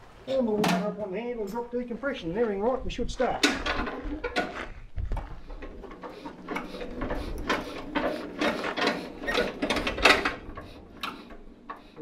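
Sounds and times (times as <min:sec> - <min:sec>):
diesel engine being hand-cranked: 0:03.3 - 0:12.0.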